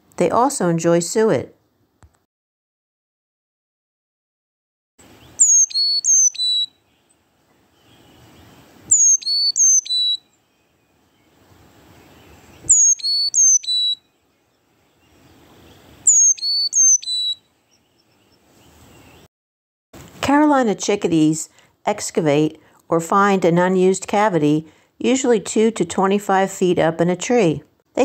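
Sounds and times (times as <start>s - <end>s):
chickadee whistled song: 5.2s - 7.0s, 7.8s - 10.4s, 12.2s - 14.1s, 14.9s - 17.8s.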